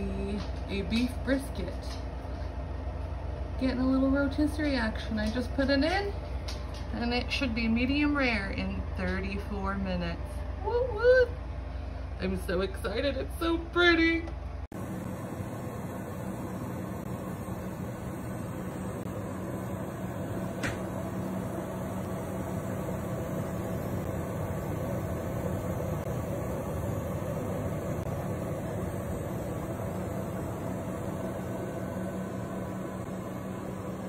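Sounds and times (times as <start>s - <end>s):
convection fan whirring: 0.0s - 34.0s
low hum: 14.3s - 34.0s.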